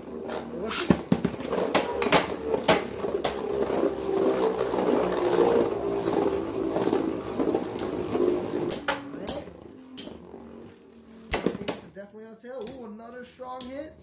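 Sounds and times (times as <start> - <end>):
spinning tops whirring on plastic: 0.0 - 12.0.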